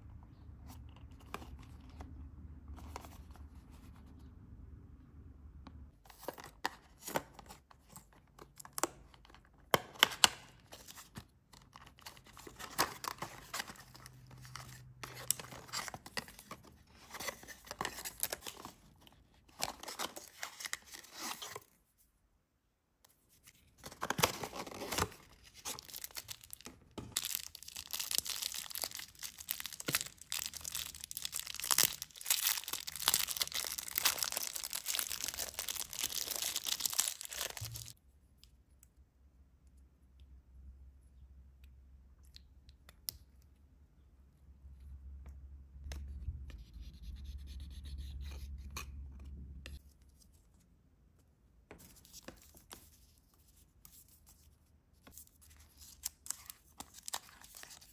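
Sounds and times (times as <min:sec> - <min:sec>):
plastic wrapper crinkling: 0:24.0 - 0:38.0.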